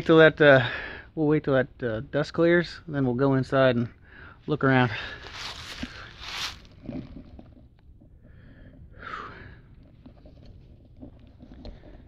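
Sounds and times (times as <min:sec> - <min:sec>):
man breathing: 0:00.6 - 0:01.2, 0:04.0 - 0:06.5, 0:08.2 - 0:09.8.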